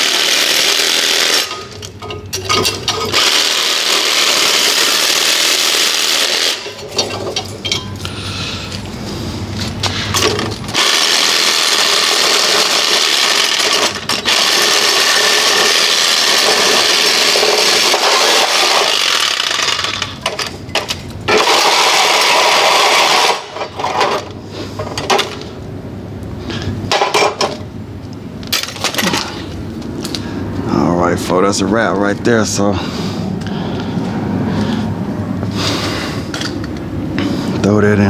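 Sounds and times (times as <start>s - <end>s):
power tool cutting metal: 0.0s - 1.8s, 2.9s - 6.8s, 10.7s - 20.2s, 21.3s - 23.7s
metal pieces clanking: 1.2s - 3.4s, 6.5s - 8.1s, 12.2s - 25.5s, 26.9s - 27.6s, 28.4s - 30.2s, 36.3s - 36.8s.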